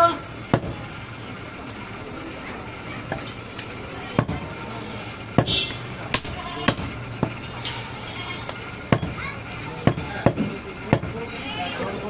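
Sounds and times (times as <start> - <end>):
background chatter: 0.0 - 12.0
cleaver chopping meat: 4.2 - 4.5, 5.4 - 7.3, 8.9 - 9.2, 9.8 - 11.2.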